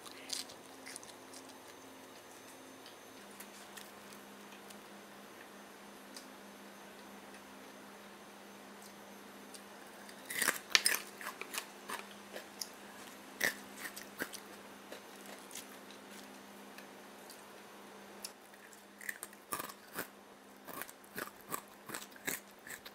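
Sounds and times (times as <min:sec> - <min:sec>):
fried food crunching and crackling: 0:00.0 - 0:02.2, 0:10.1 - 0:16.4, 0:18.3 - 0:22.9.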